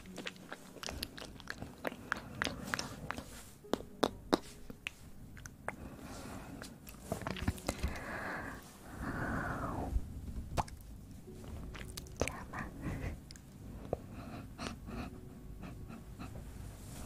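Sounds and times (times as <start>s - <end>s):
breathy sounds: 0.6s - 3.6s, 5.6s - 10.0s
wet mouth clicks and smacks: 7.2s - 7.8s, 10.6s - 10.8s.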